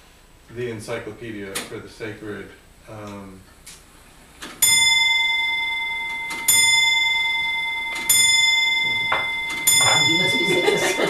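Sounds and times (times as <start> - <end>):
grandfather clock striking: 4.6 - 11.0.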